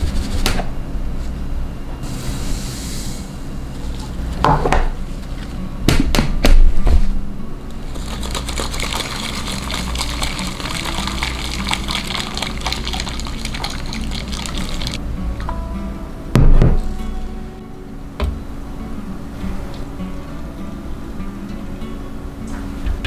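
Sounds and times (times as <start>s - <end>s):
liquid pouring: 7.9s - 15.0s
liquid sloshing in canister: 7.9s - 15.0s.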